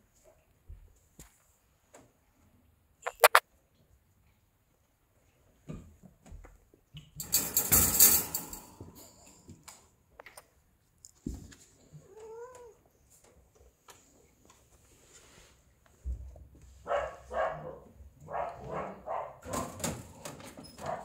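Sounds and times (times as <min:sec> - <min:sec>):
rustling noise: 0:14.0 - 0:16.0.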